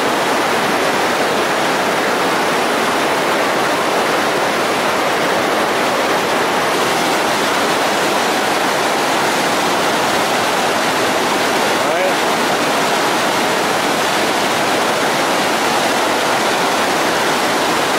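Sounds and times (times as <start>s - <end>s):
river rapids rushing: 0.0s - 17.9s.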